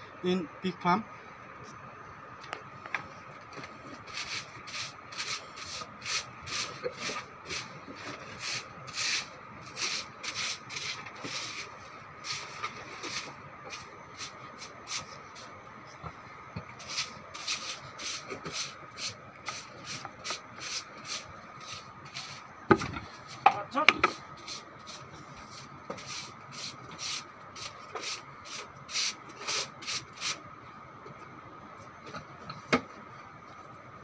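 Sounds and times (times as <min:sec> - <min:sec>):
broom scraping on wet concrete: 0:04.0 - 0:15.5, 0:16.8 - 0:22.4.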